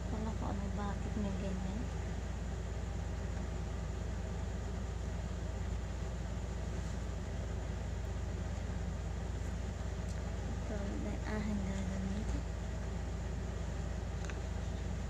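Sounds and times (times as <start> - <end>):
constant hiss: 0.0 - 15.0
low hum: 0.0 - 15.0.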